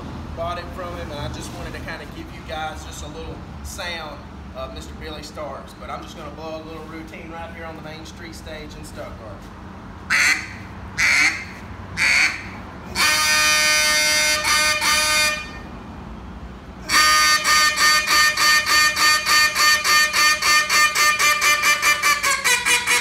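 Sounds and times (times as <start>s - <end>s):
duck call blasts: 10.1s - 15.6s, 16.8s - 23.0s
duck call quacks: 10.1s - 15.6s, 16.9s - 23.0s.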